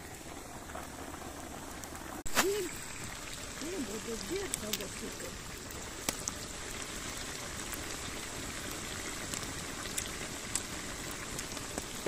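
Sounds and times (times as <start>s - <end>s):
fat sizzling and bubbling: 0.0s - 12.0s.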